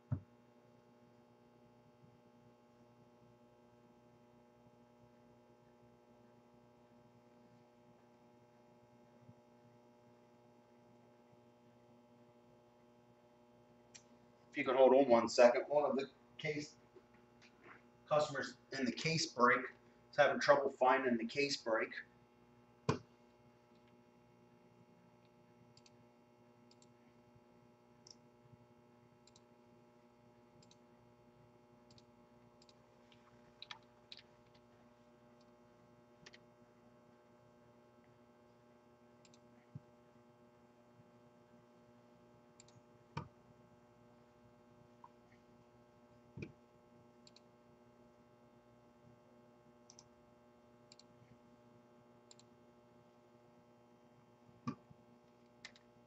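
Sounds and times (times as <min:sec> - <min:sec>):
faint room hum: 0:00.0 - 0:56.0
faint clicks and taps: 0:31.9 - 0:34.7.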